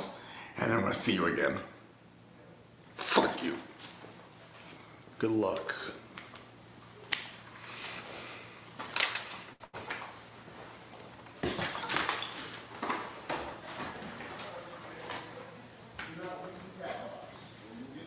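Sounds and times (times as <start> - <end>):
objects clattering: 11.4 - 15.3.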